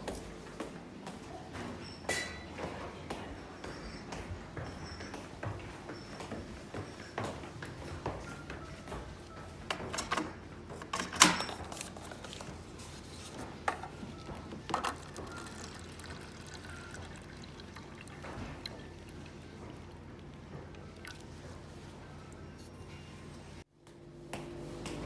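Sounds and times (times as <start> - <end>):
water pouring into paper cup: 14.7 - 21.4.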